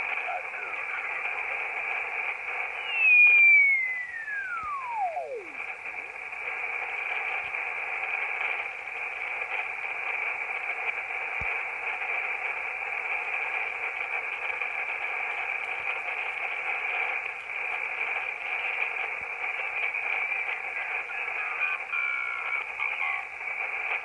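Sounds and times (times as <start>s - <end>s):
radio static hiss: 0.0s - 24.0s
whistle sliding down in pitch: 2.8s - 5.6s.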